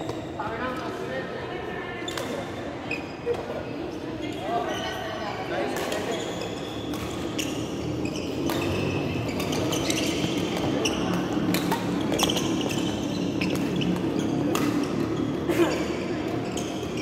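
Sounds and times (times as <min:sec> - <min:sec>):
sneakers squeaking on court floor: 0:00.0 - 0:00.9, 0:02.0 - 0:17.0
murmur of voices: 0:00.4 - 0:07.4
racket striking shuttlecock: 0:08.4 - 0:15.2.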